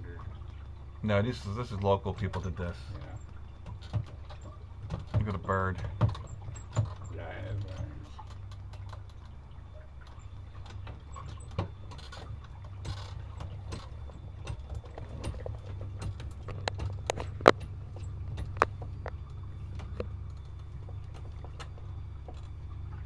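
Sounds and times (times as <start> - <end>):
boat motor hum: 0.0 - 23.0
knocks and clicks: 3.6 - 9.3, 10.6 - 22.6.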